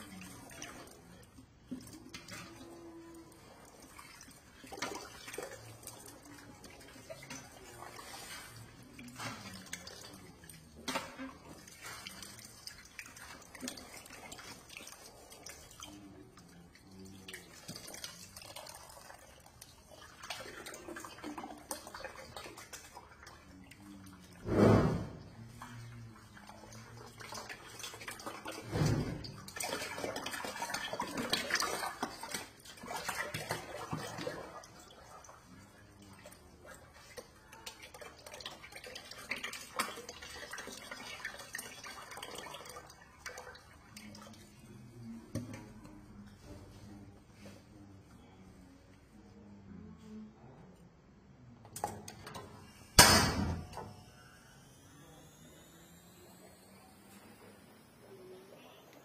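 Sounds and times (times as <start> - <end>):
running tap water: 0.0 - 24.6, 25.3 - 44.6
water sloshing and splashing: 0.0 - 44.6.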